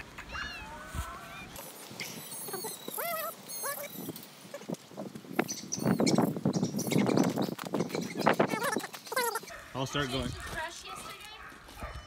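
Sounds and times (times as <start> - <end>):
birds chirping: 0.0 - 12.0
footsteps on gravel: 7.3 - 12.0.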